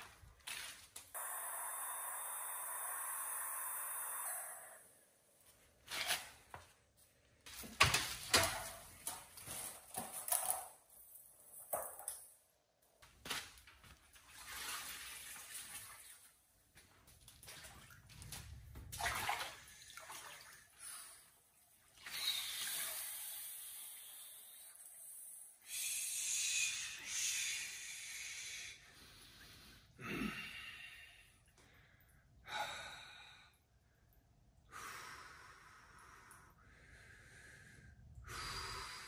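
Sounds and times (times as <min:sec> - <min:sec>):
water sloshing: 0:17.0 - 0:20.8.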